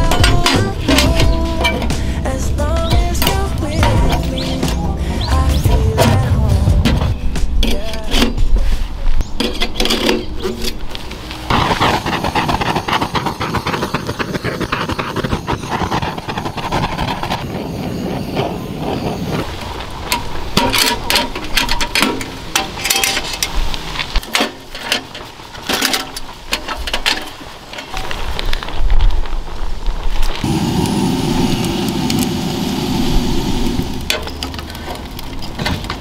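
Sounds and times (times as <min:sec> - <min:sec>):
gas torch flame rushing: 0:11.3 - 0:20.4, 0:30.4 - 0:35.2.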